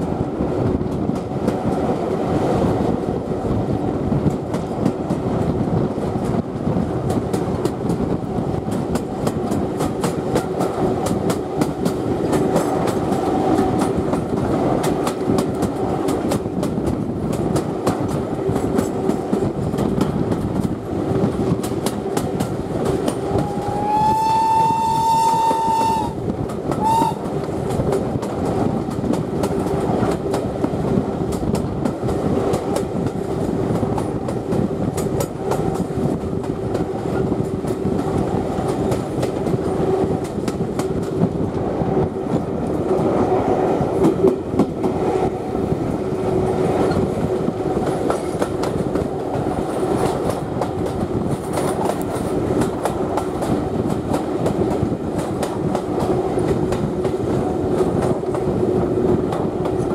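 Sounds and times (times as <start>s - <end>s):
train rumble: 0.0s - 59.9s
steam whistle: 23.3s - 26.2s, 26.8s - 27.3s.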